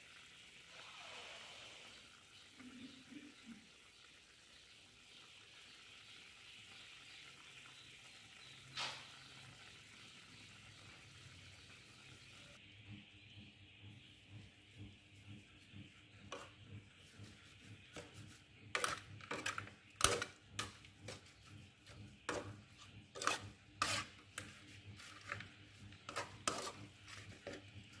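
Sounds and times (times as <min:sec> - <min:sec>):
faint sizzle: 0:00.0 - 0:28.0
spatula scraping pan: 0:15.5 - 0:28.0.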